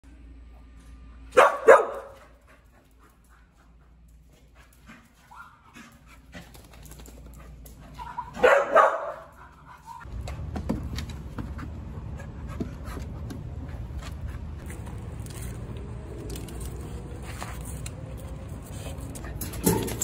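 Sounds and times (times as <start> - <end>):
dog barking: 1.3 - 2.3, 8.0 - 9.4.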